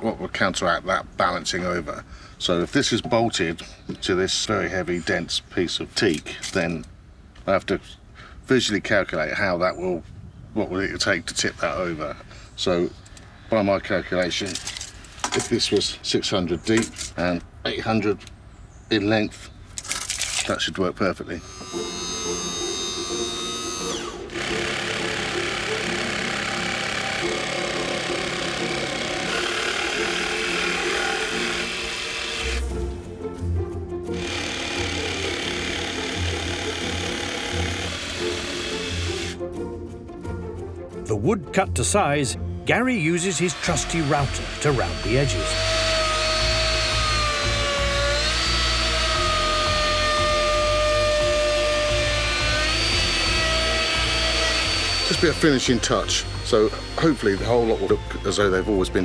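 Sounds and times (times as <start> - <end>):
jigsaw cutting wood: 21.4 - 32.7, 34.1 - 39.4, 43.3 - 58.6
router bit chewing wood: 21.4 - 32.7, 34.1 - 39.4, 43.2 - 59.0
router high whine: 21.4 - 32.7, 34.2 - 39.4, 43.3 - 59.0.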